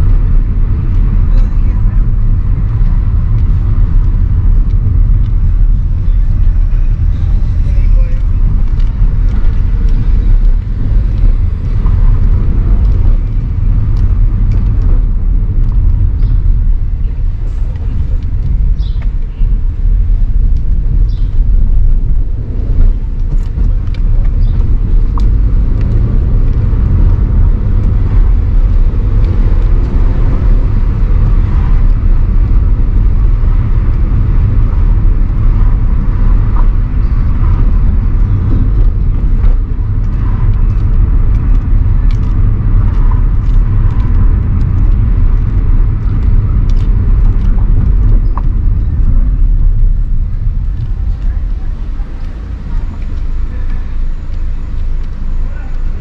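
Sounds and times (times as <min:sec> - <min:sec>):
low rumble of car driving: 0:00.0 - 0:56.0.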